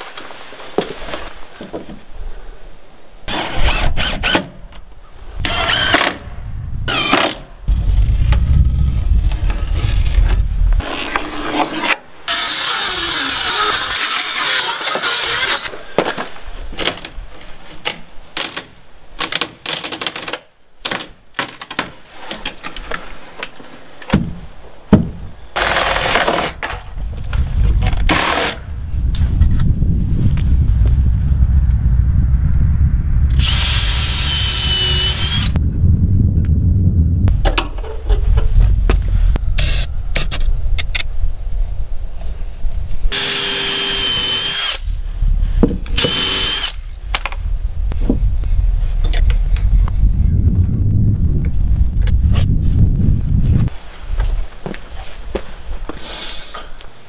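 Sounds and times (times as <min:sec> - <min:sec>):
cordless drill running: 0:33.4 - 0:35.6, 0:43.2 - 0:44.8, 0:46.0 - 0:46.8.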